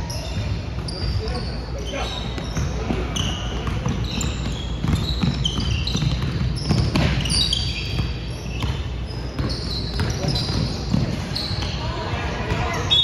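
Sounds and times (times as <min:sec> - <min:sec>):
sneakers squeaking on gym floor: 0:00.0 - 0:13.0
basketball bouncing: 0:02.3 - 0:11.8.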